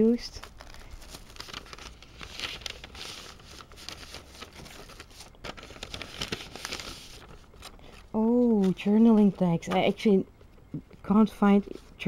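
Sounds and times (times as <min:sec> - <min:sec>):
packaging rustling and crinkling: 0:00.1 - 0:09.8.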